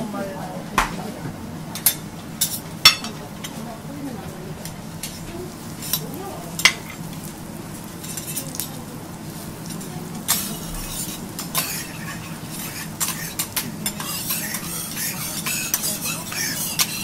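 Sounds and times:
vegetables sizzling in butter: 0:03.6 - 0:17.0
metal spatulas clinking and scraping: 0:08.0 - 0:08.6, 0:09.7 - 0:17.0.

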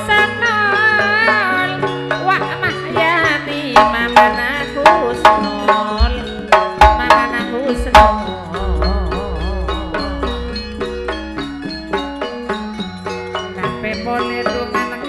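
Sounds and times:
sharp hand-drum strokes: 0:07.9 - 0:12.6
deep bass drum strokes: 0:08.0 - 0:12.5
wavering melodic line: 0:08.0 - 0:12.8.

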